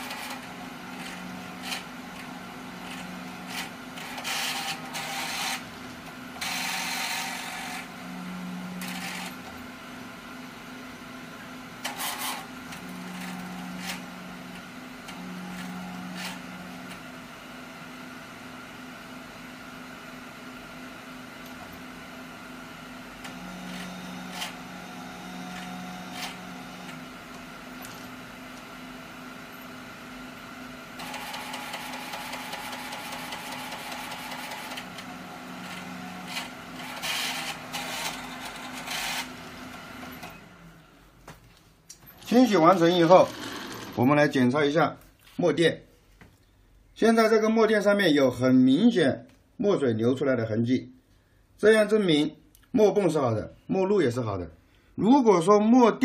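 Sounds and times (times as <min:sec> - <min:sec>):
whirring mechanism: 0:00.0 - 0:09.6, 0:11.8 - 0:17.1, 0:23.2 - 0:28.8, 0:31.0 - 0:40.7, 0:42.0 - 0:44.3
ink pump motor: 0:00.0 - 0:09.8, 0:11.7 - 0:17.2, 0:23.0 - 0:40.7, 0:42.1 - 0:44.3
printer mechanical hum: 0:00.0 - 0:44.5
printer clicks: 0:31.0 - 0:35.1.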